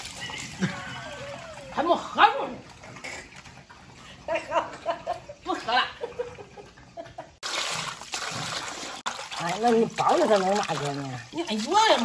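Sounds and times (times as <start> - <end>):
running water rushing: 0.0 - 2.8, 7.4 - 12.0
woman laughing: 0.3 - 1.8, 4.3 - 7.4.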